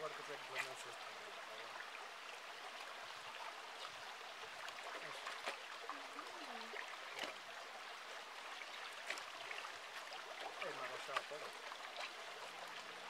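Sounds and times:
stream trickling over rocks: 0.0s - 13.0s.

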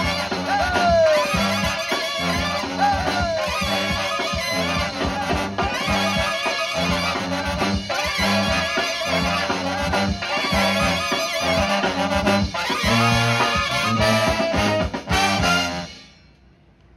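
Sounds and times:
brass band playing: 0.0s - 16.4s.

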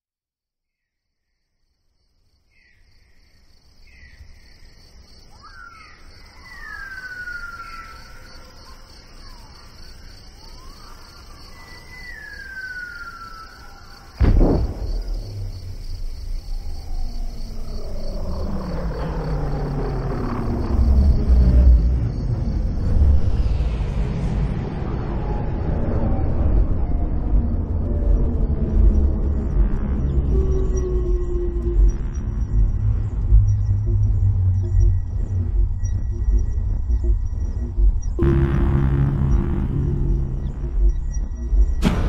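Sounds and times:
insect chirring: 1.6s - 23.7s, 26.8s - 42.0s
deep rumble: 14.2s - 42.0s
low drawn-out tones: 14.2s - 42.0s.

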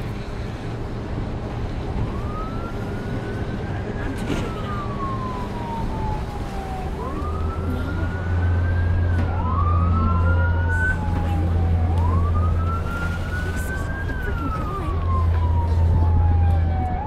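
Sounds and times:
steady low rumble: 0.0s - 17.0s
emergency vehicle siren wailing: 0.7s - 17.0s.

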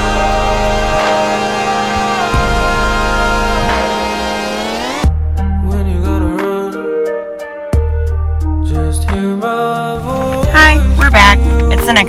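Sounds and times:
synth tones gliding upward: 0.0s - 5.1s
deep bass note: 0.0s - 6.3s.

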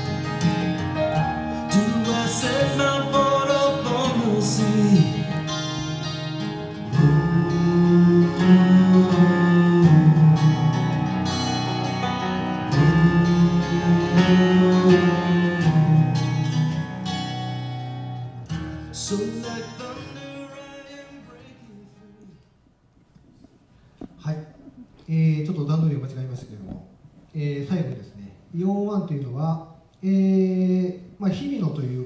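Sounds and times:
guitar: 0.0s - 28.1s
male singer: 1.7s - 5.5s, 6.9s - 10.5s, 19.0s - 22.4s.

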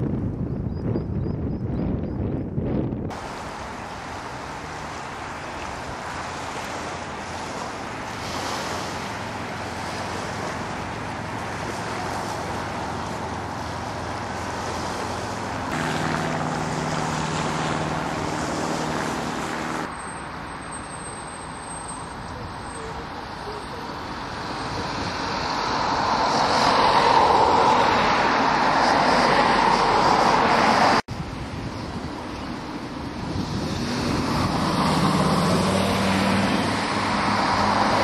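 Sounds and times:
low engine hum: 0.0s - 20.6s
wind: 0.0s - 38.0s
sea washing on shore: 3.1s - 20.0s.

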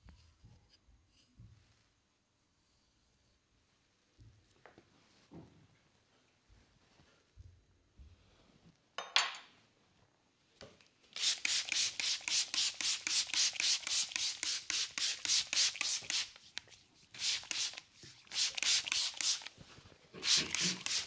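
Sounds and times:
hands rubbing wet skin: 11.1s - 21.0s.

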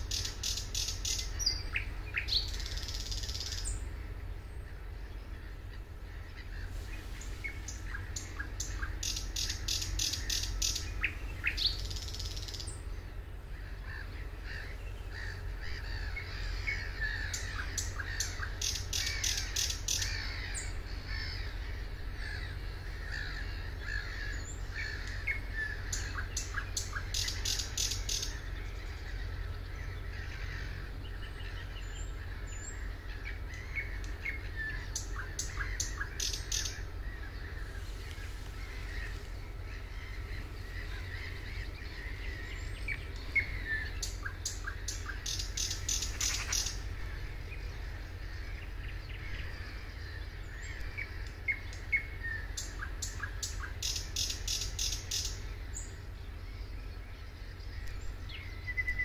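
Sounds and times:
bird song with dry clicking: 0.0s - 3.8s, 7.2s - 12.8s, 13.9s - 21.4s, 22.2s - 30.6s, 31.2s - 36.9s, 38.0s - 40.2s, 40.8s - 46.9s, 50.5s - 56.0s, 56.6s - 59.0s
steady low rumble: 0.0s - 59.0s
bird whistling and chirping: 58.4s - 59.0s.

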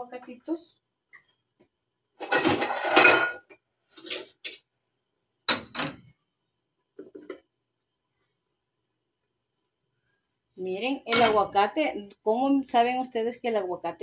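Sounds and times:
dishes and cutlery clattering: 2.2s - 4.6s, 11.1s - 11.5s.

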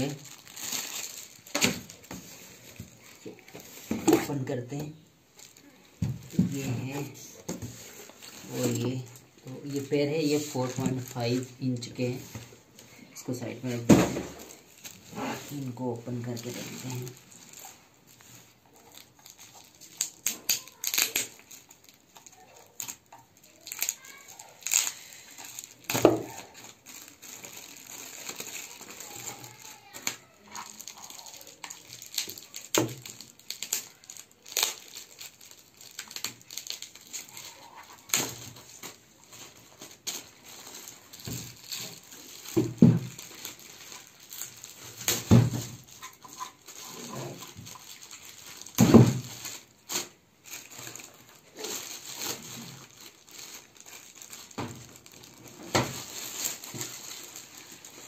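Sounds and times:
plastic bags crinkling: 0.0s - 58.0s.

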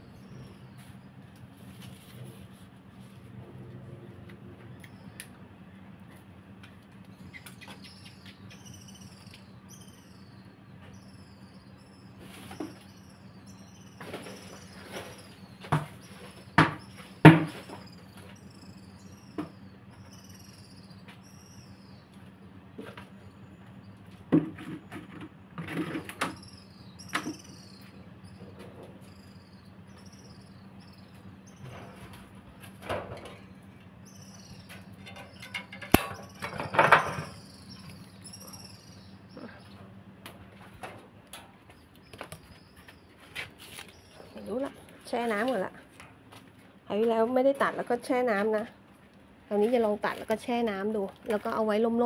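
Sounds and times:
pruning shears snipping: 35.5s - 36.2s
leaves and twigs rustling: 42.2s - 46.6s.

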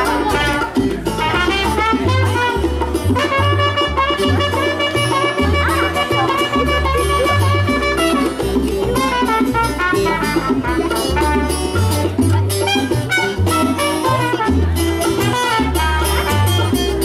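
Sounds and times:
hand drums: 0.0s - 17.0s
strummed acoustic guitar: 0.0s - 17.0s
trumpet melody: 0.0s - 17.0s
upright bass walking line: 0.0s - 17.0s.

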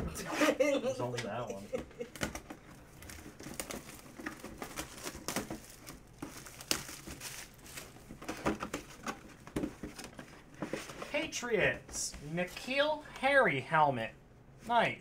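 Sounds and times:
cardboard box crinkling: 2.9s - 11.0s.

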